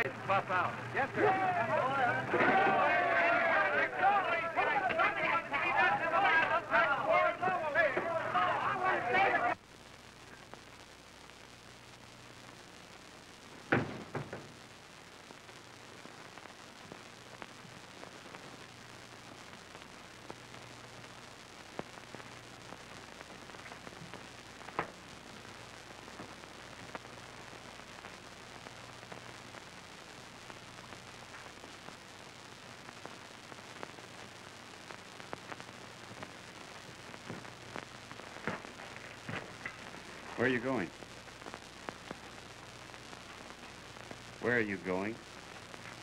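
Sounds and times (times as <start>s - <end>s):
film soundtrack hiss and crackle: 0.0s - 46.0s
scattered clicks and pops: 9.5s - 46.0s.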